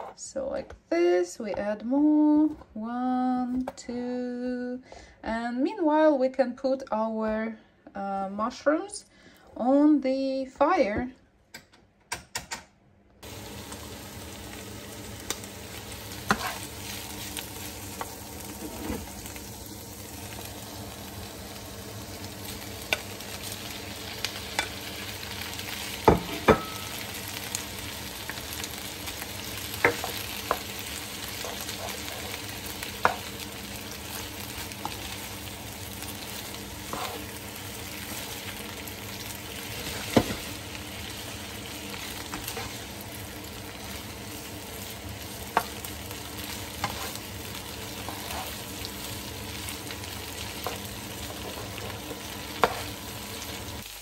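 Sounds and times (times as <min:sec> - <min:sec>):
food sizzling in a frying pan: 0:13.2 - 0:54.0
spatula scraping a pan: 0:16.2 - 0:17.4, 0:18.4 - 0:19.2, 0:29.8 - 0:33.3, 0:36.8 - 0:37.4, 0:42.2 - 0:42.9, 0:46.7 - 0:48.8.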